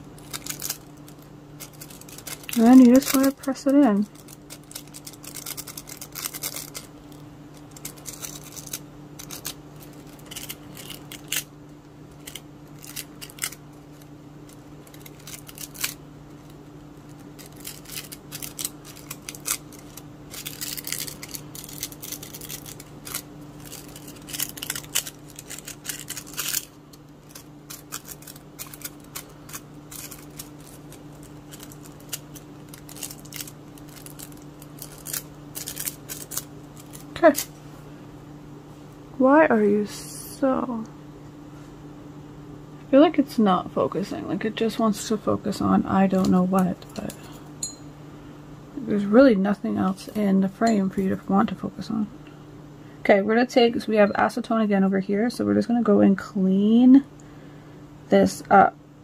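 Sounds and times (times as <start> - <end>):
foil crinkling: 0.0 - 11.5, 12.1 - 37.6
steady low hum: 0.0 - 59.0
nails clicking against foil: 0.2 - 6.9, 7.5 - 11.5, 12.1 - 37.5.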